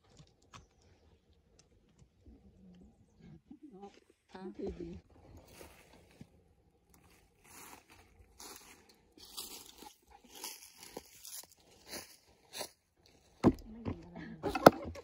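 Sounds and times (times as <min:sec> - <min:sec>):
footsteps crunching dry leaves: 0:05.4 - 0:06.3, 0:06.9 - 0:13.4.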